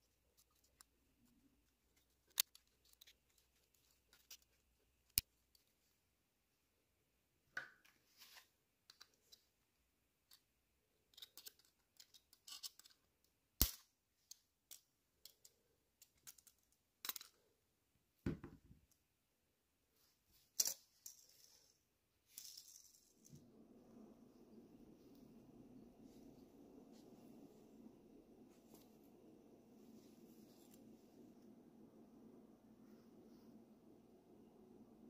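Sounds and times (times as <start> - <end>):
toy car clicks and scrapes: 10.3 - 17.4
low steady rushing noise: 23.4 - 35.0.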